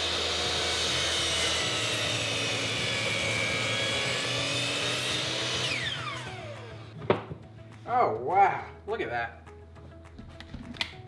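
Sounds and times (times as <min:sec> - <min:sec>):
miter saw cutting wood: 0:00.0 - 0:07.0.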